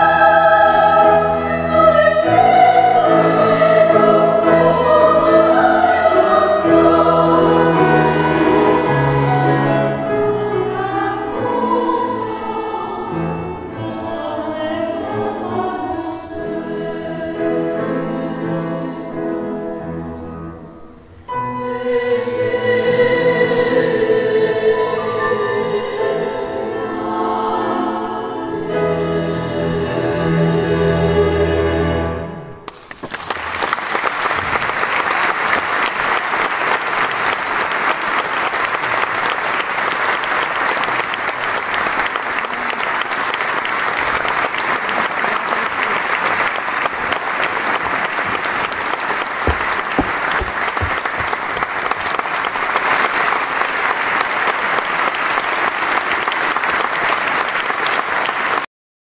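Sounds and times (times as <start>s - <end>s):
choir holding a chord: 0.0s - 32.6s
audience applause: 32.7s - 58.7s.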